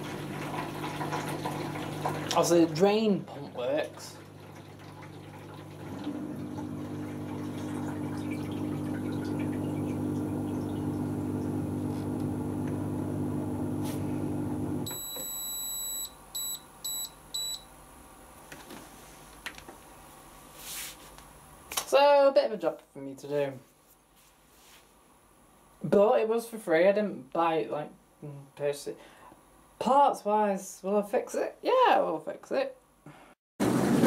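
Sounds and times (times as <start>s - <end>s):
dishwasher drain pump humming: 0.0s - 17.6s
control panel beeps: 14.9s - 17.6s.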